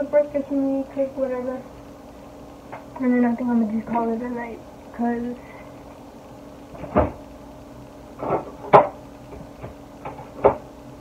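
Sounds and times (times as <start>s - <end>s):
faint steady hum: 0.0s - 11.0s
knocks and clicks in kitchen: 8.2s - 10.7s.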